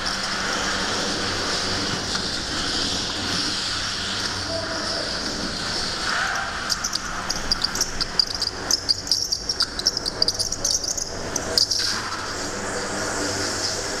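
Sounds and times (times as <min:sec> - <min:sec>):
go-kart tyres squealing: 0:05.9 - 0:12.8.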